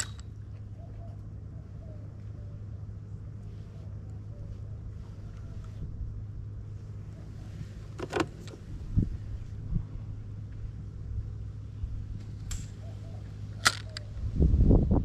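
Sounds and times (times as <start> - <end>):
loud low rumble: 8.6 - 15.0
clicks and knocks of fishing gear: 13.6 - 14.1.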